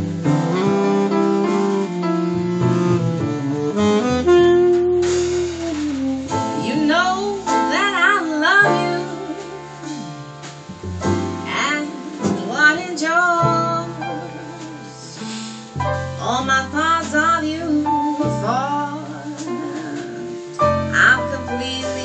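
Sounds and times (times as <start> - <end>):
tenor saxophone melody: 0.0 - 10.8
double bass: 0.0 - 22.0
drums: 0.0 - 22.0
piano: 0.0 - 22.0.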